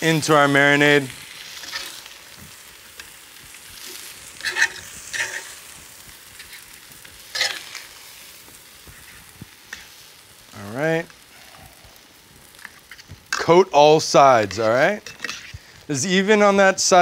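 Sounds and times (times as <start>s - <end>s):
chicken sizzling on grill pan: 0.0s - 17.0s
metal tongs scraping and clacking: 4.4s - 5.5s, 7.3s - 7.8s, 15.0s - 15.6s.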